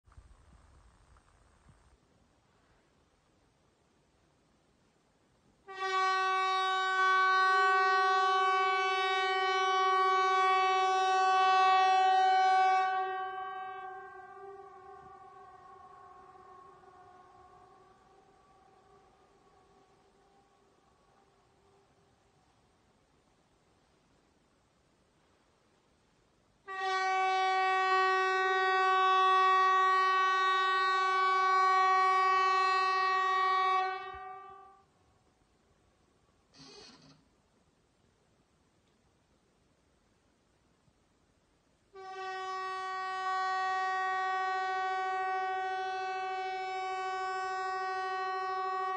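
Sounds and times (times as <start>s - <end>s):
warning horn steady blast: 5.6s - 22.1s, 26.6s - 35.0s, 42.0s - 48.9s.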